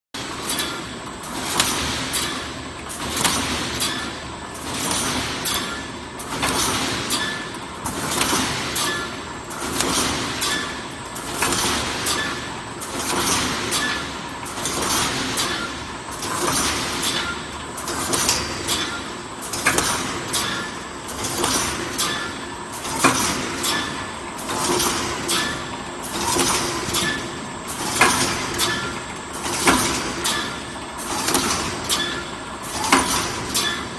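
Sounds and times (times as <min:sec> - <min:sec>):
welding machine clattering strokes: 0:00.2 - 0:33.9.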